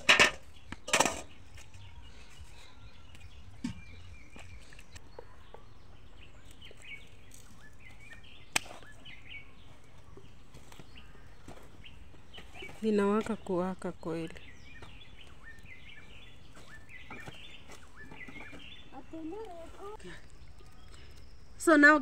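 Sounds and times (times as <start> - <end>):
small birds chirping: 0.0 - 22.0
firewood cracking: 6.2 - 21.6.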